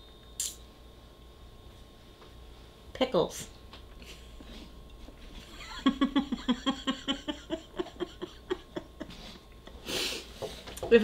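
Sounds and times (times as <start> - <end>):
woman laughing: 5.4 - 9.4.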